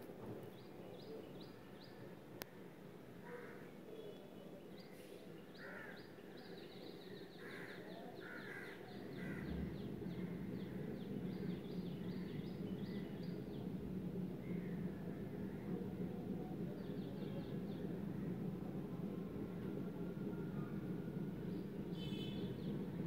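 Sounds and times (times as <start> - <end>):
crows cawing: 3.2 - 3.7, 5.6 - 6.0, 7.4 - 9.6.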